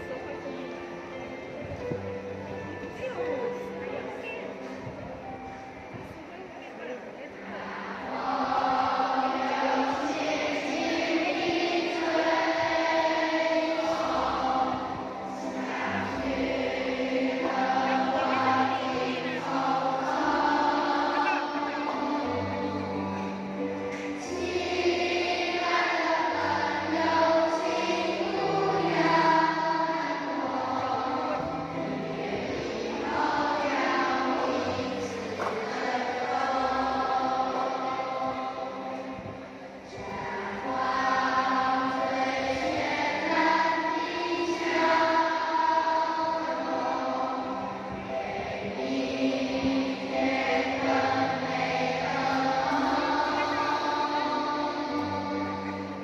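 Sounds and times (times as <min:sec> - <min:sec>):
musical accompaniment: 0:00.0 - 0:56.0
children singing in unison: 0:07.3 - 0:56.0.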